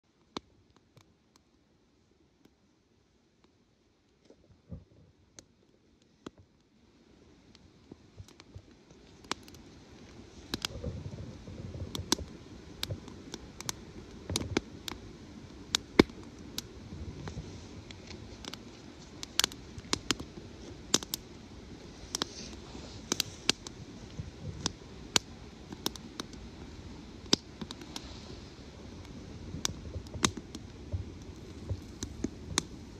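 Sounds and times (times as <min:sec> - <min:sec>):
wood fire crackling and popping: 0:03.4 - 0:32.9.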